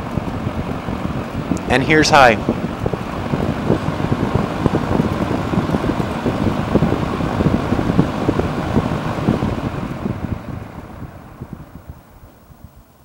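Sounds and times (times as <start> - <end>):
box fan running: 0.0 - 13.0
rush of air buffeting microphone: 0.0 - 13.0.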